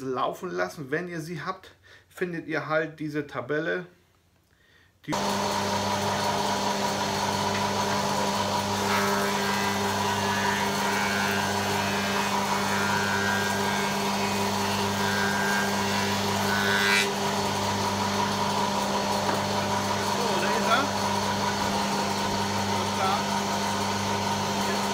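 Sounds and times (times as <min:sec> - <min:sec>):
high wood cutting noise: 0:05.1 - 0:24.9
spindle moulder motor hum: 0:05.2 - 0:24.9.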